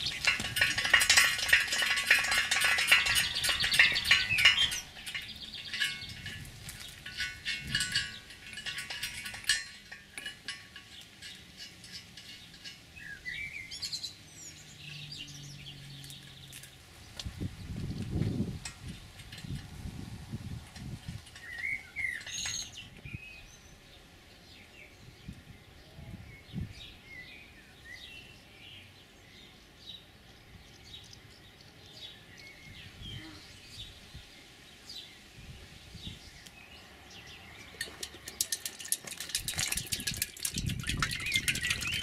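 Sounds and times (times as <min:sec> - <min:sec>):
oil pouring and splashing into tank: 0:00.0 - 0:12.8, 0:37.8 - 0:42.0
small birds chirping: 0:00.0 - 0:18.2, 0:20.5 - 0:42.0.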